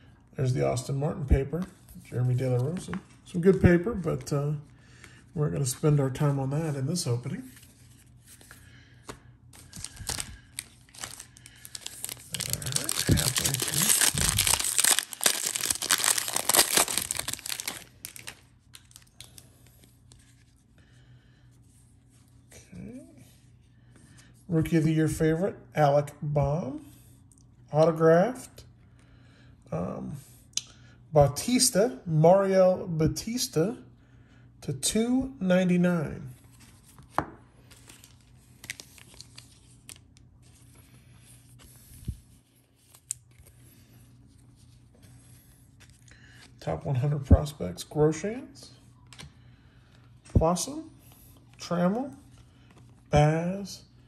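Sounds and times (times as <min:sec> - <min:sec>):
cards rustling: 0:07.4 - 0:20.6, 0:36.4 - 0:46.6
foil wrapper crinkling: 0:09.6 - 0:19.5, 0:37.6 - 0:40.2.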